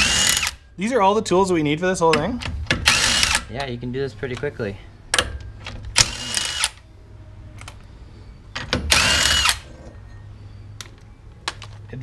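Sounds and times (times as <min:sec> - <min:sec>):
cordless power driver whining: 0:08.9 - 0:09.6.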